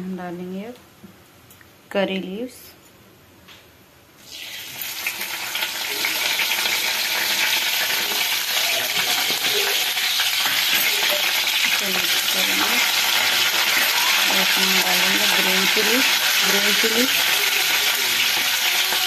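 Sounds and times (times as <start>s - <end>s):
leaves sizzling in hot oil: 4.2s - 19.0s.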